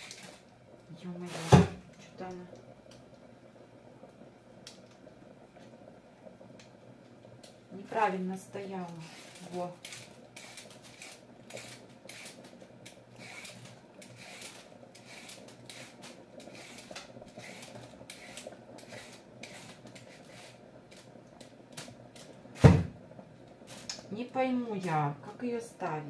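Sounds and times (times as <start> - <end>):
loud thump: 22.6 - 23.0.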